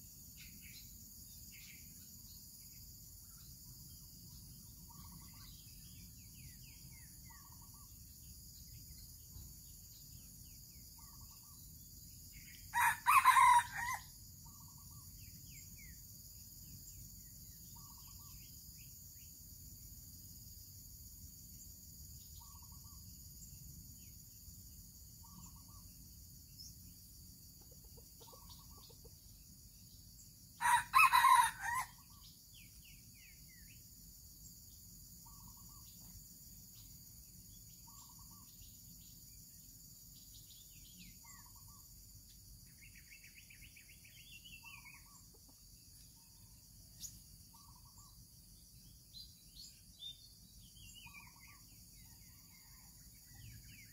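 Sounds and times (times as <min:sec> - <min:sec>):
small bird calls: 0:00.0 - 0:16.1, 0:16.9 - 0:19.3, 0:22.2 - 0:23.4, 0:25.2 - 0:27.0, 0:27.6 - 0:33.9, 0:35.1 - 0:39.4, 0:40.1 - 0:53.9
high insect drone: 0:00.0 - 0:53.9
rooster crowing: 0:12.7 - 0:14.1, 0:30.6 - 0:32.0.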